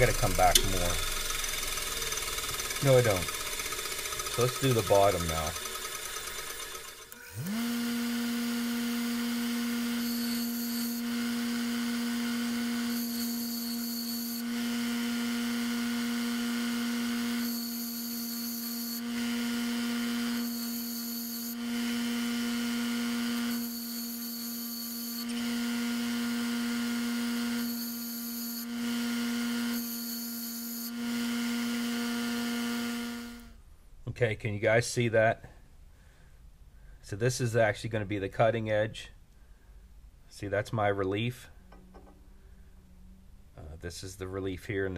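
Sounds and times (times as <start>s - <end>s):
bench grinder motor hum: 0.0s - 33.6s.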